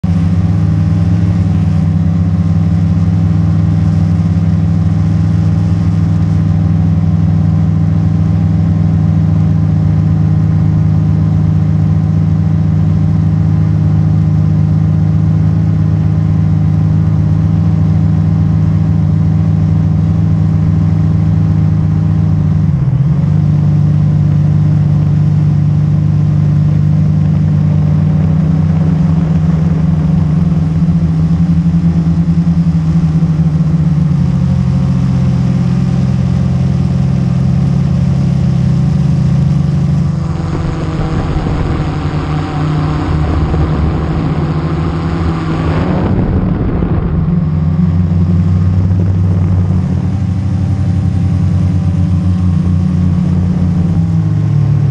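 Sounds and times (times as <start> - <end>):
drone propellers buzzing: 38.1 - 52.3.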